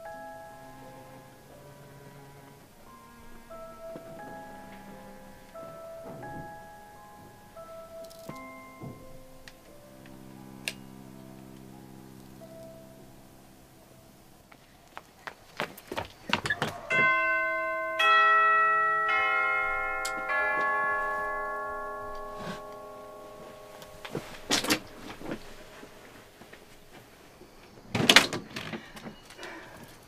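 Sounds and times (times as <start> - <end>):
doorbell chime: 2.9 - 10.9, 16.9 - 26.0.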